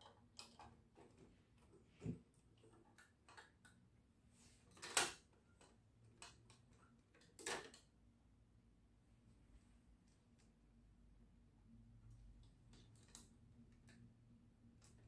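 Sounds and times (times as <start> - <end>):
plastic parts clattering: 0.0 - 3.8, 4.6 - 7.9
plastic parts clicking and rattling: 0.0 - 4.0, 4.6 - 8.0, 12.4 - 15.0.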